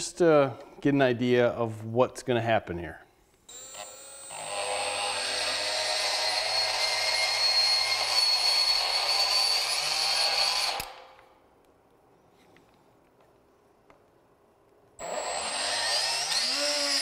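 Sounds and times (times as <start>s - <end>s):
die grinder grinding metal: 3.5s - 11.0s, 15.0s - 17.0s.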